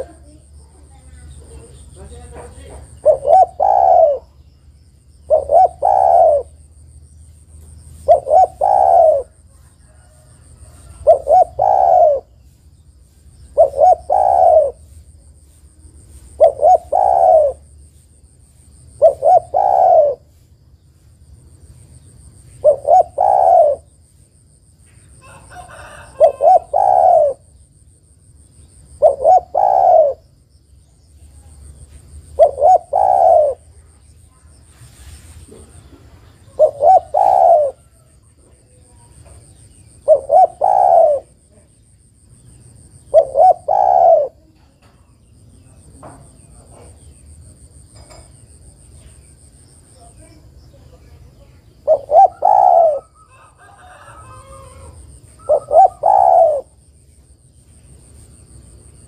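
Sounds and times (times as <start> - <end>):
dove cooing: 0.0 - 4.5, 5.2 - 6.6, 7.9 - 12.5, 13.5 - 15.0, 16.1 - 17.8, 18.9 - 20.4, 22.6 - 24.0, 25.2 - 27.6, 28.9 - 30.3, 32.2 - 34.0, 35.0 - 41.7, 43.0 - 45.1, 50.9 - 56.8.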